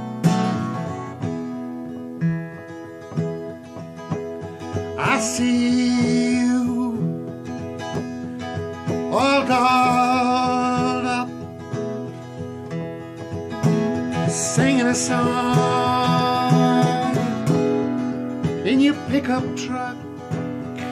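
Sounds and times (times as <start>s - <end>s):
acoustic guitar strumming: 0.0s - 20.9s
man singing: 4.8s - 7.8s, 8.8s - 11.5s, 14.1s - 20.9s.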